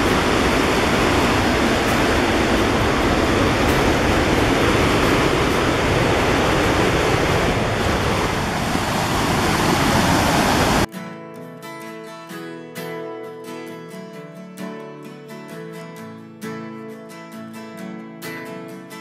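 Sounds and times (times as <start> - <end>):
river rapids rushing: 0.0 - 10.9.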